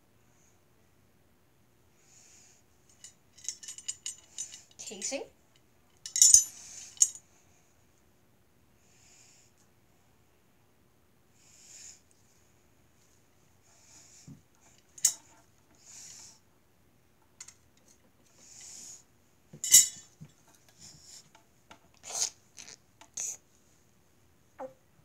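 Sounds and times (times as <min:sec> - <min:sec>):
sharp clicks and clinks: 0:02.9 - 0:04.8, 0:06.0 - 0:07.2, 0:15.0 - 0:15.2, 0:19.6 - 0:20.0.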